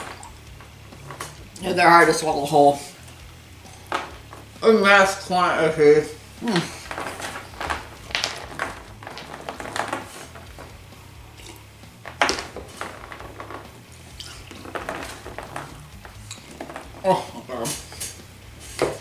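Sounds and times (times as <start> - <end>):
fruit snacks raked across table: 6.4 - 10.8
swallowing: 11.3 - 11.7, 14.1 - 14.7.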